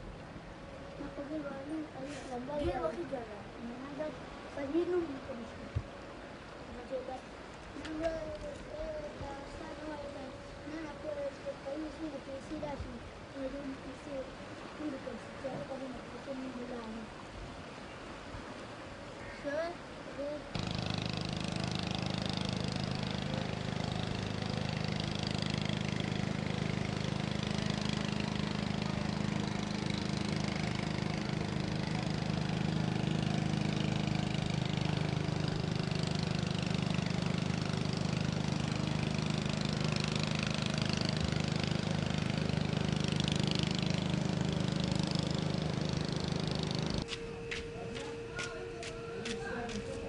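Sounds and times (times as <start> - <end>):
engine running steadily: 20.3 - 50.0.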